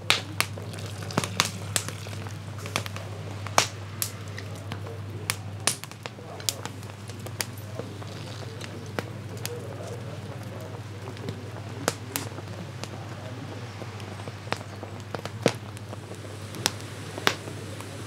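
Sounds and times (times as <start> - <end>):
low rumble of boiling: 0.0 - 18.0
wood fire crackling: 0.0 - 18.0.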